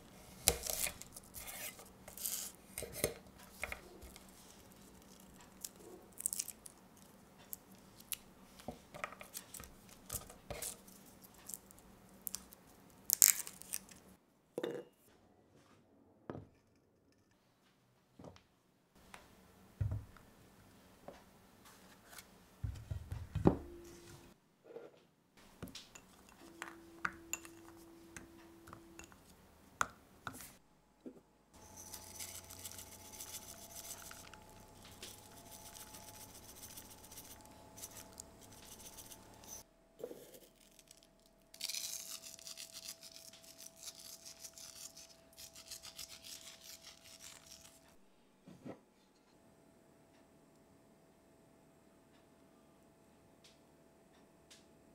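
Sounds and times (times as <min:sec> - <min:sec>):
dry rasping of seasoning: 0:00.4 - 0:03.1, 0:31.6 - 0:40.6, 0:41.6 - 0:47.9.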